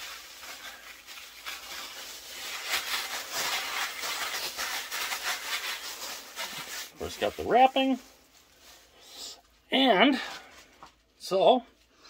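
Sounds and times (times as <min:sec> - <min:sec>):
packaging crinkling: 0:00.0 - 0:08.9.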